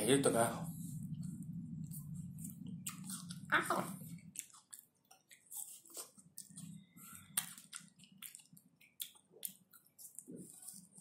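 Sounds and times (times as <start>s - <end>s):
chewing and wet mouth smacks: 2.4s - 3.4s, 4.1s - 10.8s.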